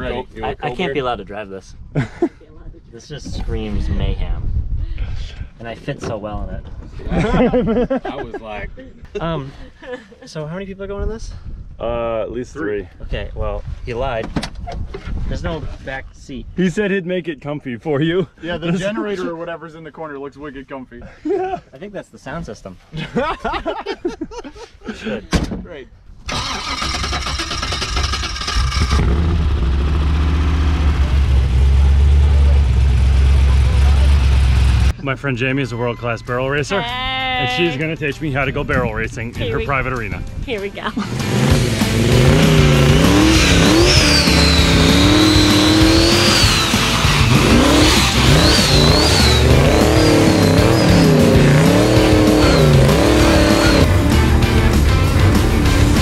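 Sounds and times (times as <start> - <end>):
car engine running loud: 28.4 - 34.9, 41.1 - 56.0
turbo whistle: 43.4 - 51.0.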